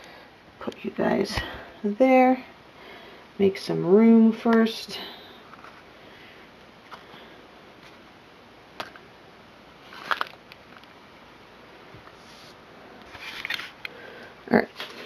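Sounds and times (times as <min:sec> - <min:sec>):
plastic clatter: 0:09.9 - 0:10.9.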